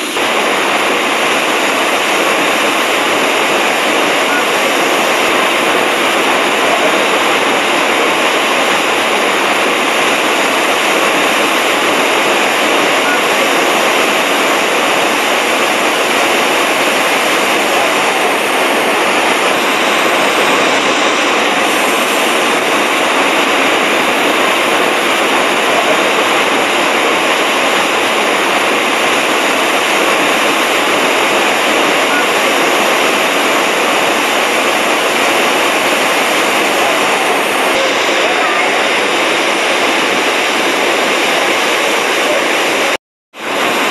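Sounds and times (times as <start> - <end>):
waterfall rushing: 0.0 - 43.9.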